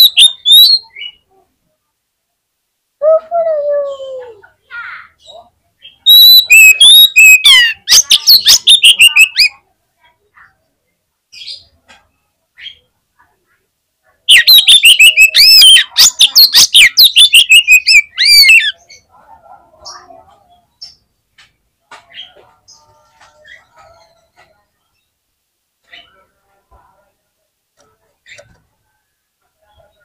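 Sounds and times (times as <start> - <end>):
magpie-robin singing: 0.0 - 1.2, 5.2 - 9.6, 14.3 - 19.2.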